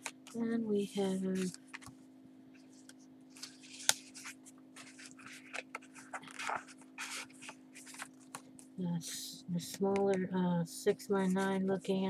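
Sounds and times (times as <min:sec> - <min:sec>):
faint steady hum: 0:00.0 - 0:12.0
paper pages rustling: 0:01.4 - 0:02.0, 0:02.6 - 0:08.7.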